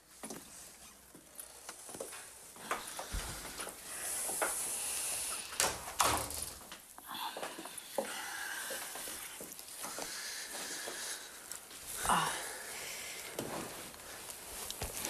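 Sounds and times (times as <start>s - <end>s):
footsteps: 0.0s - 4.8s, 13.1s - 15.0s
wooden door opening and shutting: 5.6s - 6.9s.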